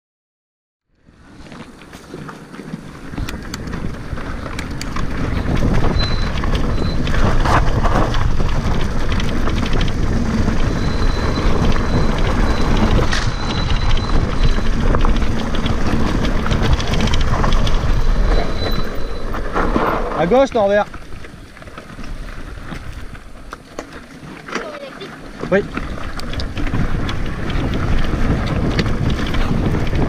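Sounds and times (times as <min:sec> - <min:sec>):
wind buffeting microphone: 0:01.0 - 0:24.1, 0:24.8 - 0:30.0
bike tyres rattling over trail: 0:01.0 - 0:30.0.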